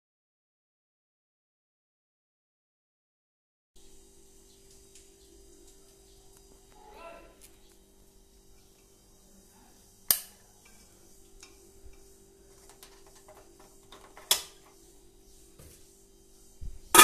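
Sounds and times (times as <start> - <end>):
faint steady hum: 3.8 - 17.0.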